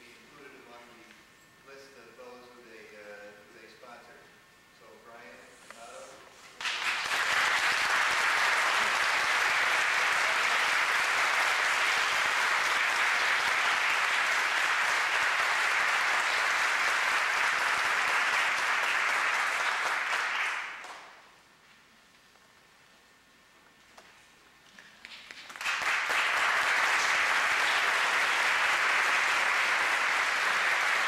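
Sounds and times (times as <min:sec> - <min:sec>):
audience applauding: 0:06.6 - 0:21.2, 0:25.0 - 0:31.0.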